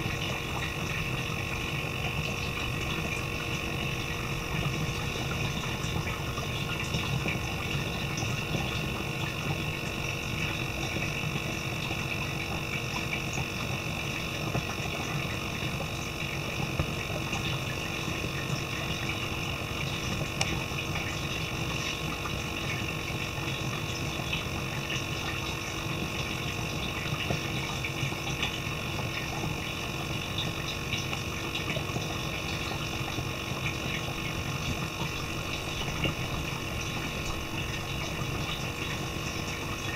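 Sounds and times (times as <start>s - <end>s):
small pump humming: 0.0s - 39.9s.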